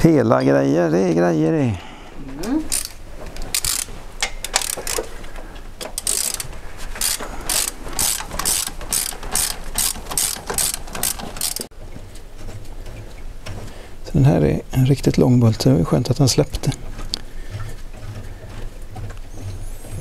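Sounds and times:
ratchet wrench clicking: 0:02.7 - 0:05.1, 0:05.9 - 0:11.7.

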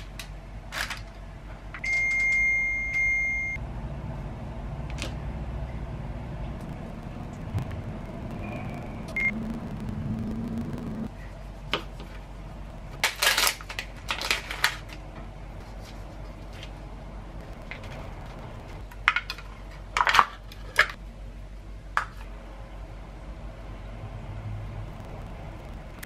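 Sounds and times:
low steady hum: 0:00.0 - 0:26.0
plastic packet crinkling: 0:12.9 - 0:15.0.

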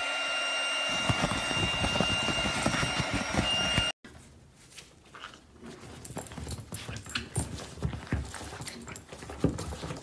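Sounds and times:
dog claws tapping on leather sofa: 0:01.0 - 0:03.9.

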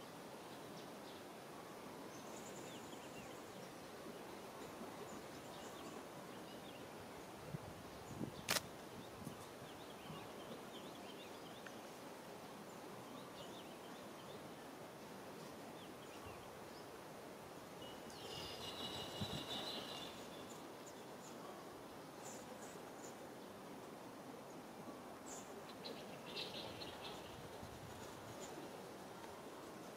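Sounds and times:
steady background hiss: 0:00.0 - 0:29.9
sharp click: 0:08.4 - 0:08.7
faint high chirps: 0:17.8 - 0:20.6.

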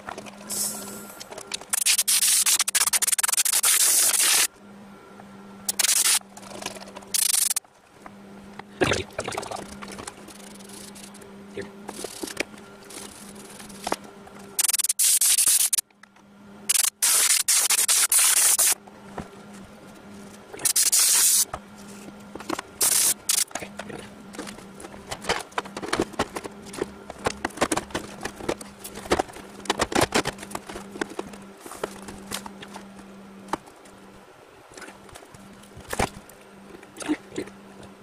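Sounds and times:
low steady hum: 0:00.0 - 0:02.9, 0:04.0 - 0:38.0
loud hissing bursts: 0:16.7 - 0:18.8, 0:20.6 - 0:21.5, 0:22.8 - 0:23.4.

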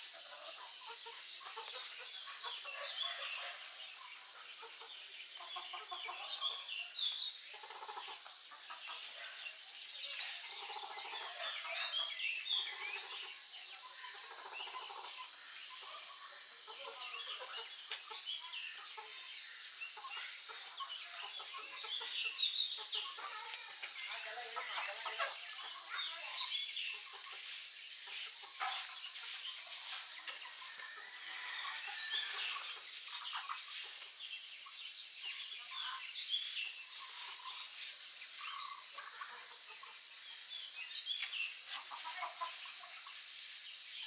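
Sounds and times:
high-pitched insect drone: 0:00.0 - 0:44.0.

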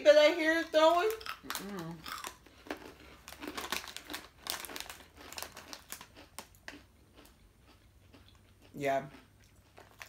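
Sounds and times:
plastic snack packet crinkling: 0:00.6 - 0:07.4, 0:09.7 - 0:10.0.

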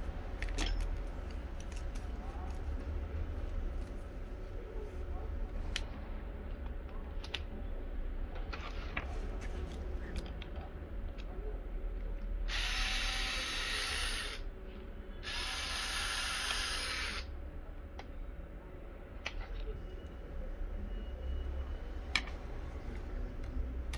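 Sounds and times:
cordless power tool running: 0:12.5 - 0:14.4, 0:15.2 - 0:17.2.

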